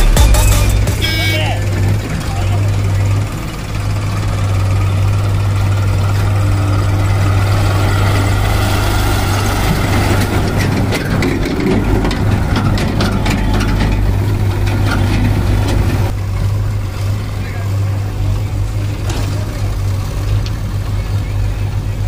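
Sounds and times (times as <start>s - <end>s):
tractor diesel engine running: 0.0s - 22.0s
rattling clicks: 10.1s - 16.2s.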